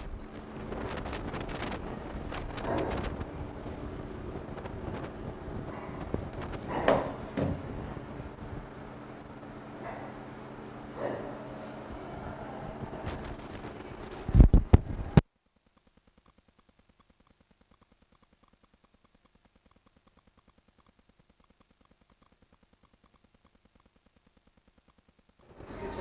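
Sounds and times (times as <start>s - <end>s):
room noise: 0.0s - 26.0s
faint ticking: 15.7s - 25.4s.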